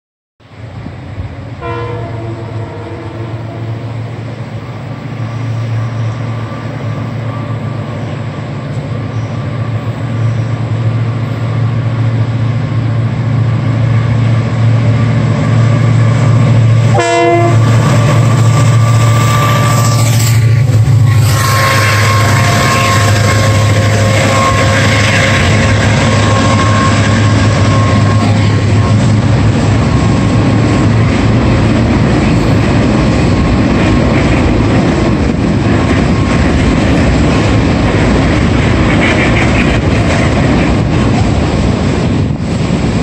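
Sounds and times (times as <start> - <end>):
diesel locomotive engine running: 0.4 - 43.0
locomotive horn chord: 1.6 - 4.0, 16.8 - 20.1, 21.1 - 29.3.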